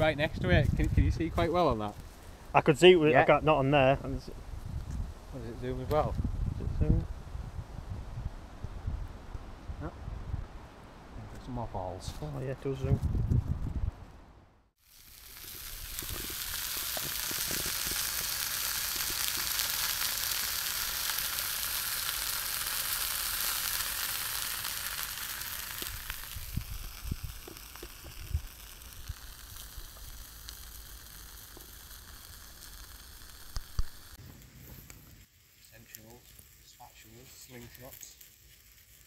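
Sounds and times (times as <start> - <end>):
sausages sizzling in frying pan: 14.8 - 39.0.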